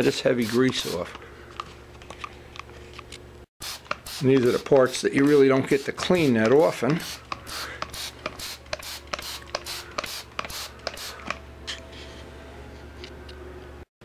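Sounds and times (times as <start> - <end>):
spray bottle spritzing: 3.6 - 4.6, 5.2 - 11.3.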